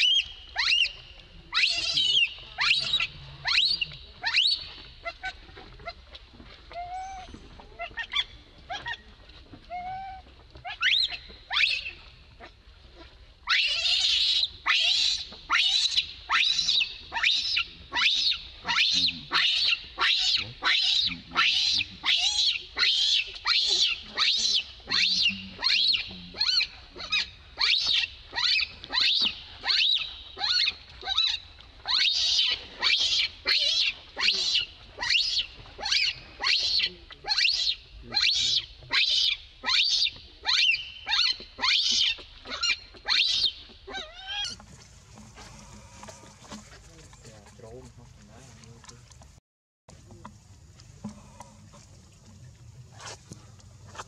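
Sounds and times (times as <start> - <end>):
baby monkey crying: 1.5 - 4.6, 13.5 - 44.6.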